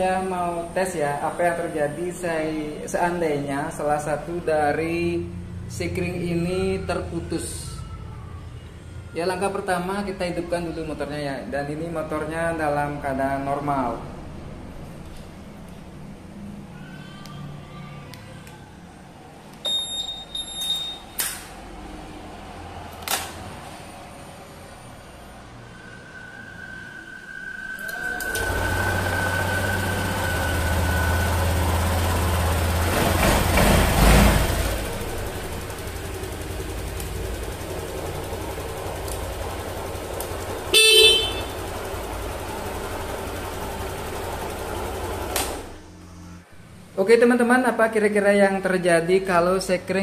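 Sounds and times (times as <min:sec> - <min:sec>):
high electronic beep: 0:19.6 - 0:21.1
scooter engine idling: 0:28.4 - 0:45.8.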